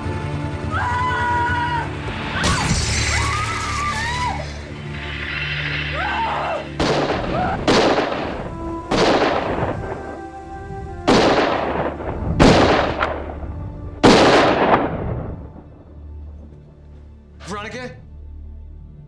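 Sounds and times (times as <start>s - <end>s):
handgun shots: 6.8s - 10.0s, 11.1s - 13.2s.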